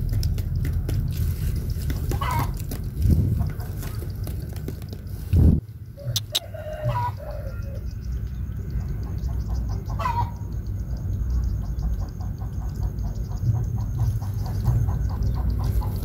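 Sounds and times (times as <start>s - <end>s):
chickens clucking: 1.6s - 4.6s, 6.0s - 7.8s, 8.8s - 16.0s.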